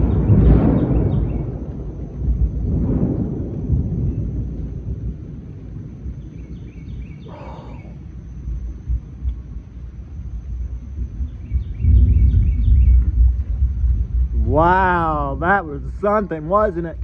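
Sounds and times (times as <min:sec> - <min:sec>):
thunder rumbling: 0:00.0 - 0:17.0
faint high chirps: 0:06.2 - 0:08.0.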